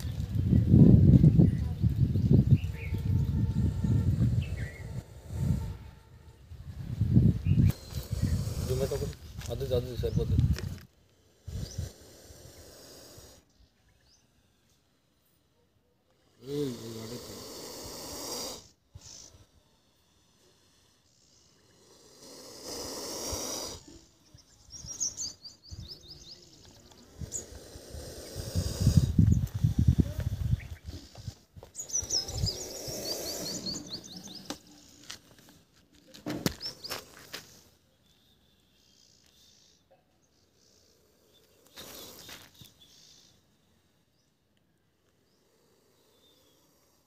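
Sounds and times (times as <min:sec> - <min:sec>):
snake hissing: 0:02.9 - 0:13.7, 0:16.1 - 0:24.2, 0:26.4 - 0:35.0, 0:36.6 - 0:37.8, 0:40.5 - 0:44.2, 0:45.0 - 0:47.0
small bird chirping: 0:07.1 - 0:10.8, 0:18.6 - 0:21.8, 0:23.4 - 0:35.2, 0:36.5 - 0:43.5, 0:45.2 - 0:47.0.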